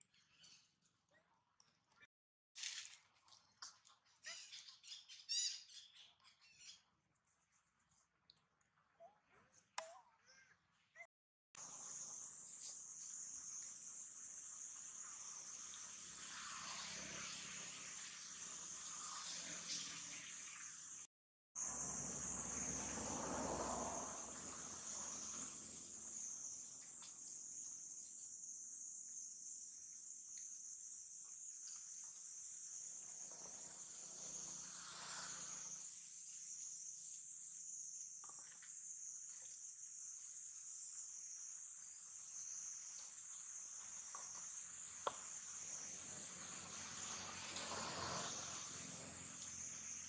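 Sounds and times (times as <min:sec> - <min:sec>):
insect chorus: 0:11.6 - 0:21.0, 0:21.6 - 0:50.0.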